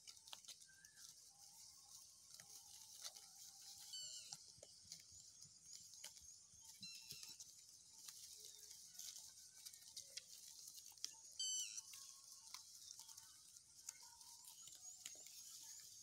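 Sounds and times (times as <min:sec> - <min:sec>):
sheep chewing grass: 0:00.0 - 0:16.0
birds chirping: 0:03.6 - 0:16.0.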